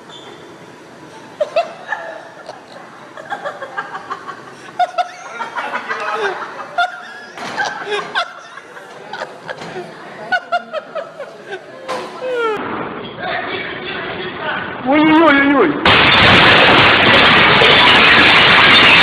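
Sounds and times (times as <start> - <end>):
people laughing: 1.4 - 12.6.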